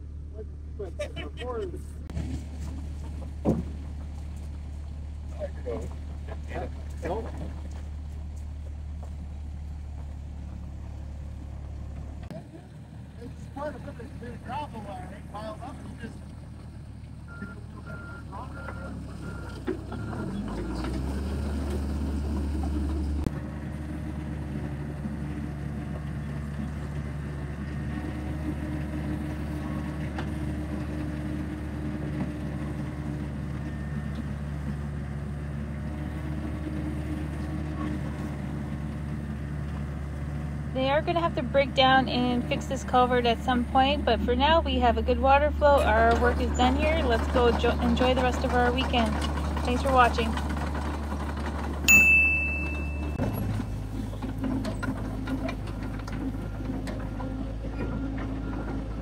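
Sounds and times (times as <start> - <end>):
excavator diesel engine running: 0.0 - 59.0
bell-like chime: 51.9 - 53.2.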